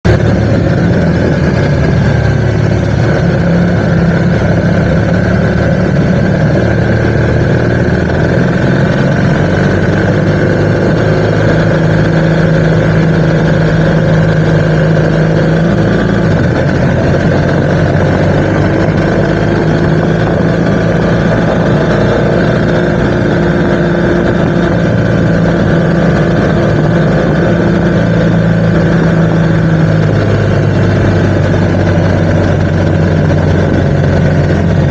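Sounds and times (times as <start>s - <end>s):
motorcycle engine cruising: 0.0s - 34.9s
wind and road noise: 0.0s - 34.9s.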